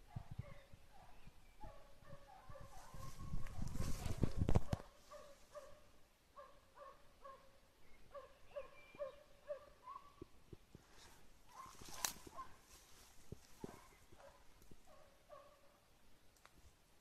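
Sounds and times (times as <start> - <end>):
distant hound baying: 0.1 - 3.8, 4.6 - 7.5, 8.1 - 10.2, 13.6 - 15.8
faint clicks: 16.3 - 16.6.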